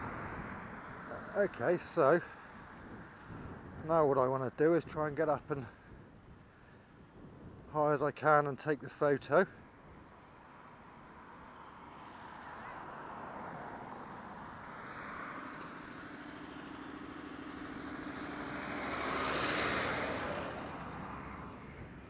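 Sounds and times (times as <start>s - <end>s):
vehicle passing by: 10.8s - 22.0s.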